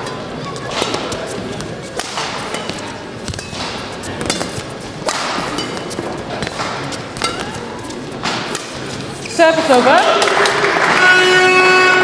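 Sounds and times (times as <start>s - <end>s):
shoes squeaking on court: 0.0s - 9.9s
shuttlecock hit by rackets: 0.7s - 8.9s.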